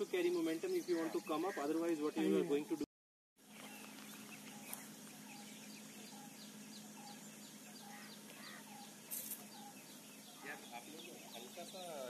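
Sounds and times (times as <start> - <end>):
birds chirping faintly: 0.0 - 12.0
rustle: 3.4 - 12.0.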